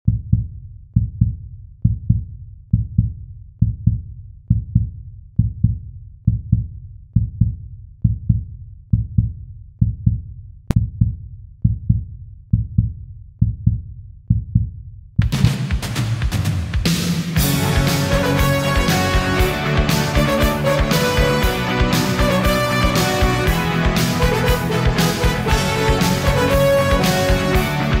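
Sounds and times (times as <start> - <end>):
heartbeat thumps: 0.1 - 16.4.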